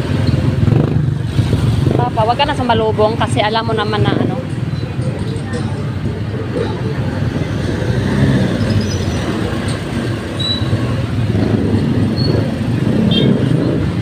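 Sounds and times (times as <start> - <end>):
motorcycle engine rumbling: 0.0 - 14.0
road noise: 0.0 - 14.0.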